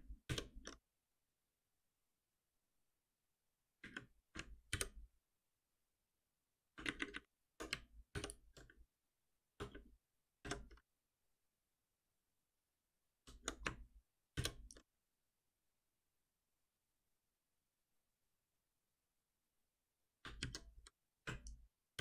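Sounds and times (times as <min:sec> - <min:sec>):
computer keyboard keystrokes: 0:06.8 - 0:08.8, 0:20.2 - 0:21.6.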